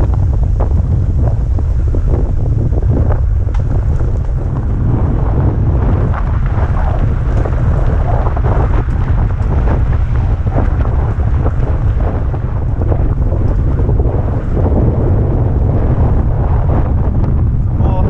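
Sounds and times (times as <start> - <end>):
wind buffeting microphone: 0.0 - 18.0
tyres crackling over gravel: 0.3 - 14.7.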